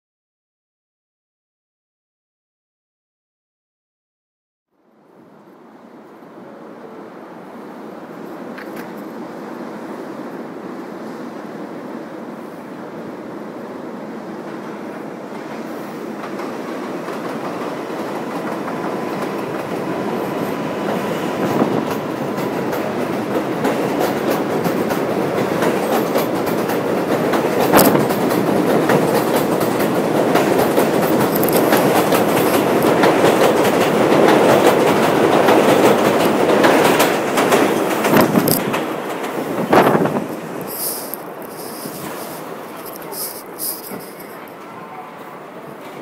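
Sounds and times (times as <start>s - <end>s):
train wheels clacking on rails: 15.3s - 45.0s.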